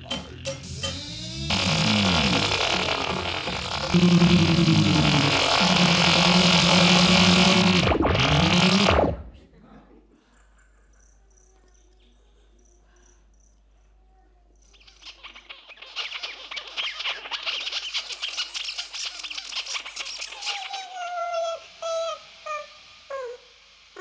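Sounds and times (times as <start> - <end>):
high insect-like chirps: 14.5 - 24.0.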